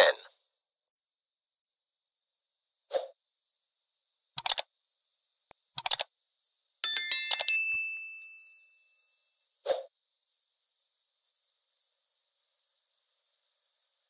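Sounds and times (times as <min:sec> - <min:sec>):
mouse clicks: 0:04.4 - 0:04.7, 0:05.5 - 0:06.1
notification bell ding: 0:06.8 - 0:08.8.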